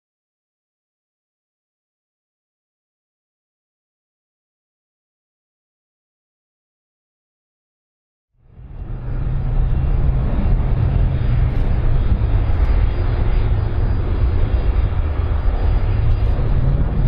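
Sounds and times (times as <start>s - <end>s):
jet engines rumbling: 8.4s - 17.0s.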